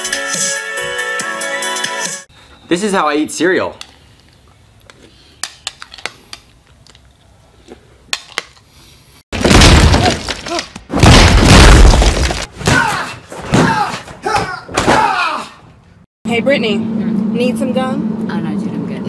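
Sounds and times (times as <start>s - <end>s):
crashing with shattering glass: 9.4s - 12.5s
man yelling: 12.7s - 15.6s.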